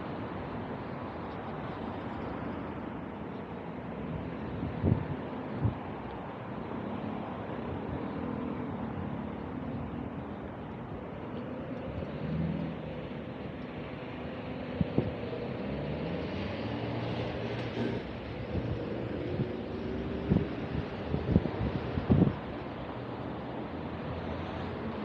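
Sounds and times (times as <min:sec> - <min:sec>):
passing motor traffic: 0:00.0 - 0:25.0.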